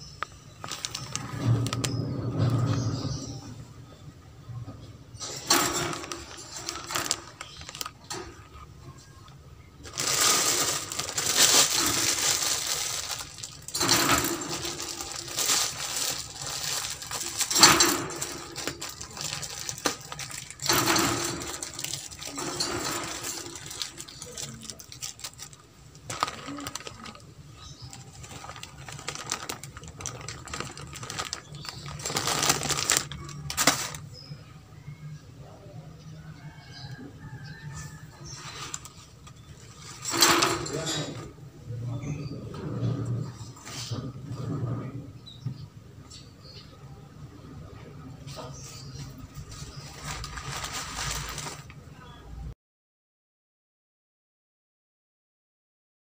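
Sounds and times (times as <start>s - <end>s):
wire cage rattling: 5.2s - 8.4s, 9.8s - 34.1s, 39.7s - 41.3s.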